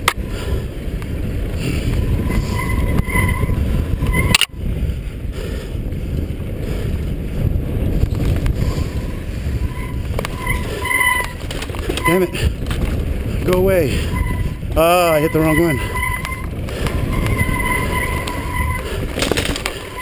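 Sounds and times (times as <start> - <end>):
mountain bike rattling: 0.0 - 20.0
wind buffeting microphone: 0.0 - 20.0
brake squeals: 1.5 - 4.5, 8.5 - 20.0.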